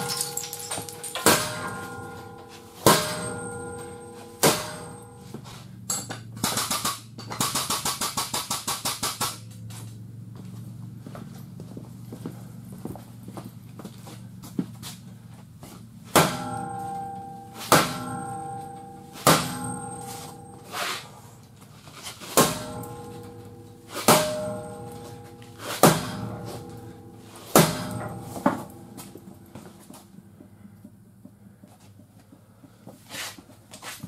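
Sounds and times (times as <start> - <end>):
hammer striking metal ringing: 0.0 - 6.2, 16.1 - 21.2, 22.4 - 29.9.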